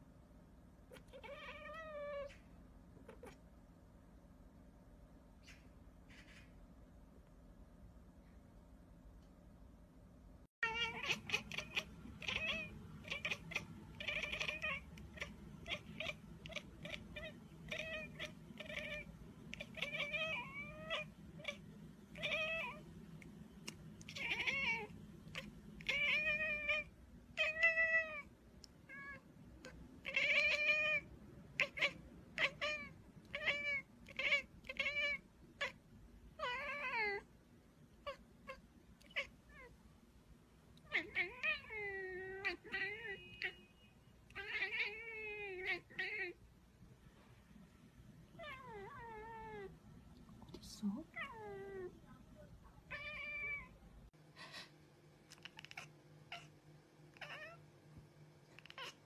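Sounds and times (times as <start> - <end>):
cat meowing and chirping: 0.9 - 3.4, 10.6 - 22.9, 23.6 - 35.8, 36.4 - 37.3, 38.0 - 39.8, 40.8 - 46.4, 48.3 - 49.8, 52.9 - 53.8, 55.3 - 56.5, 57.1 - 57.6, 58.5 - 59.0.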